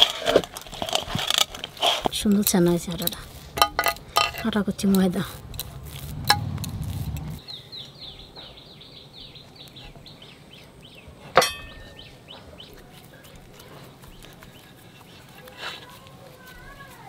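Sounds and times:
small bird chirping: 4.7 - 15.4.

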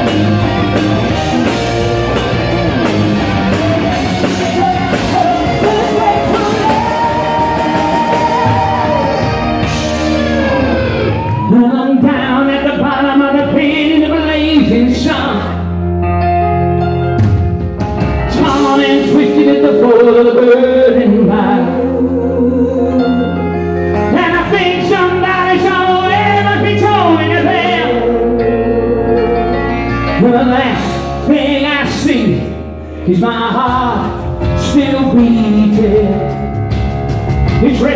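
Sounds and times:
live rock band: 0.0 - 37.9
long held bass notes: 0.0 - 37.9
man singing: 3.5 - 10.7, 11.4 - 15.7, 18.2 - 23.4, 24.0 - 36.6, 37.5 - 37.9.

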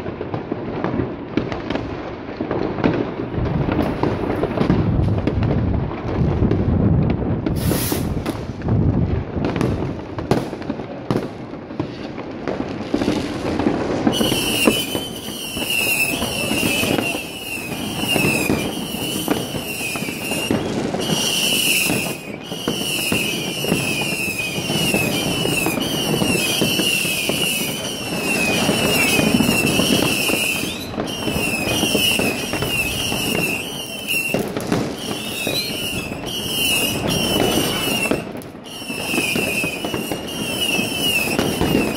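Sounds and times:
fireworks crackling and banging: 0.0 - 41.9
high falling whistle: 14.1 - 34.4, 35.0 - 41.9.

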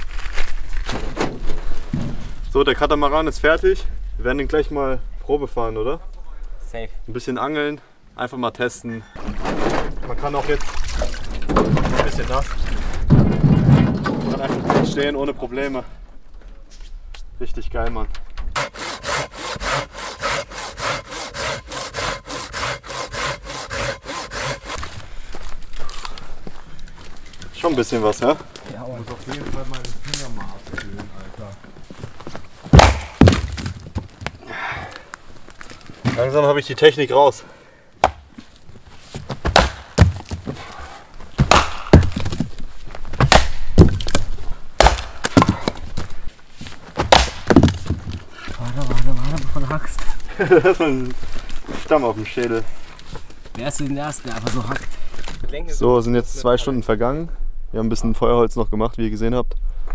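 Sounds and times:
axe splitting firewood: 18.5 - 25.4, 32.7 - 34.4, 39.2 - 46.1, 46.9 - 50.1
hand saw cutting log: 18.6 - 25.0.

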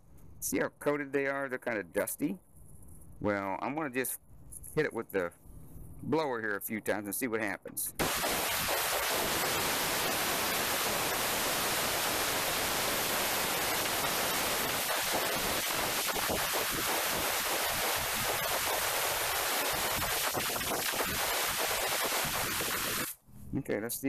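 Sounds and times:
compressed air hissing: 7.9 - 23.2.

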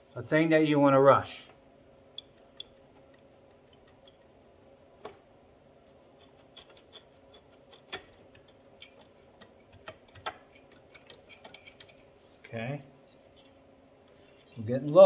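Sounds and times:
metallic clicks and ticks: 7.4 - 12.0.

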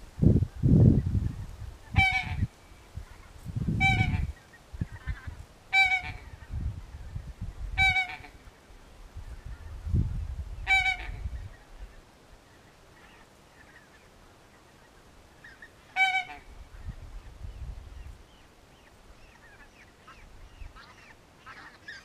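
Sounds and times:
low rumbling microphone noise: 0.0 - 12.0, 16.4 - 18.5
goose honking: 1.9 - 6.4, 7.8 - 8.5, 10.7 - 11.2, 15.5 - 16.5, 20.8 - 22.0.

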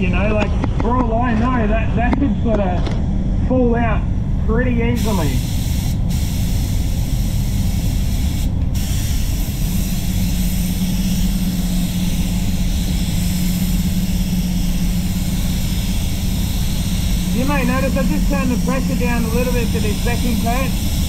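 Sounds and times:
spray booth fans humming: 0.0 - 21.0
spray gun air hissing: 5.0 - 21.0.

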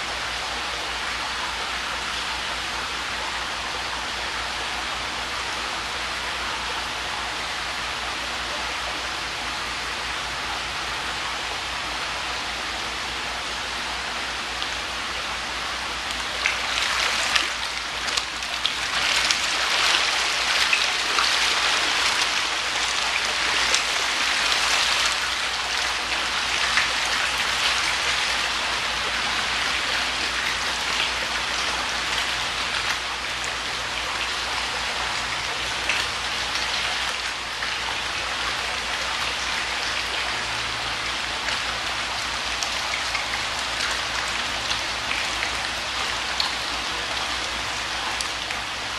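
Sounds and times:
fish splashing at water surface: 14.6 - 48.9.

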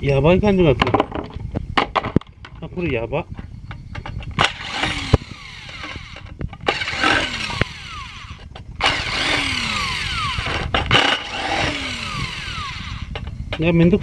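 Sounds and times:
power screwdriver running: 4.4 - 13.2.

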